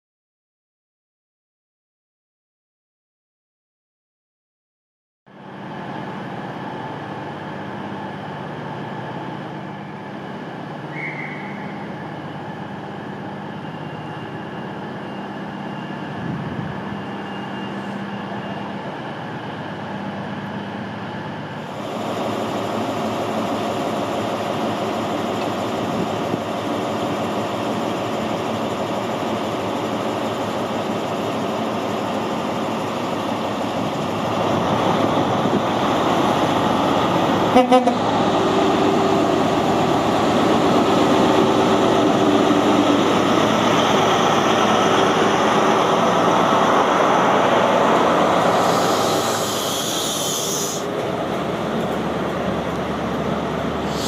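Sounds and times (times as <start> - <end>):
diesel train humming: 5.3 - 54.0
diesel engine running: 18.5 - 54.0.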